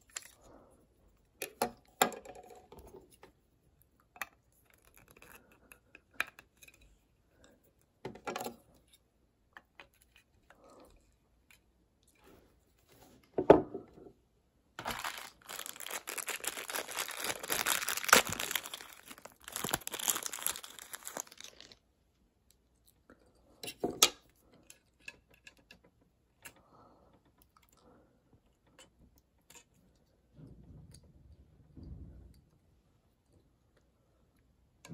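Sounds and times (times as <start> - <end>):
plastic wrapping crinkling: 14.8 - 21.8.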